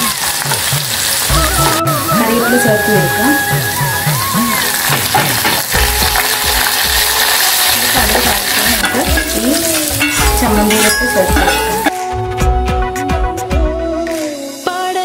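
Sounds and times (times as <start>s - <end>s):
spices sizzling in hot oil: 0.0s - 12.0s.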